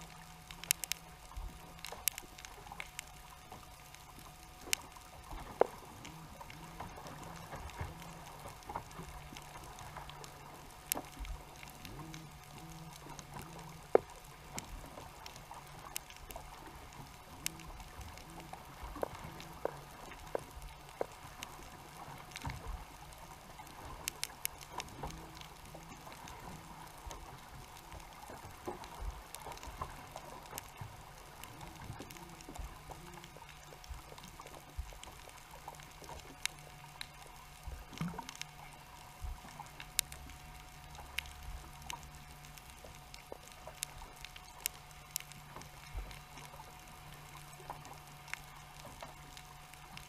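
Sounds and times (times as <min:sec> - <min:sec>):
faint steady hum: 0:00.0 - 0:50.0
underwater clicks and crackles: 0:00.0 - 0:50.0.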